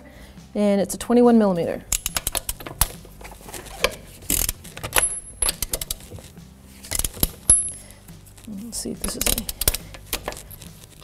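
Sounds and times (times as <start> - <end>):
wrench clicking on lug nuts: 1.9 - 7.9, 9.0 - 11.0.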